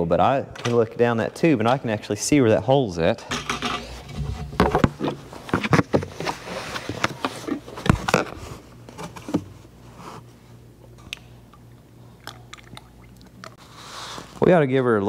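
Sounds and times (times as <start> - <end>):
plastic bucket knocks and thumps: 3.3 - 7.2.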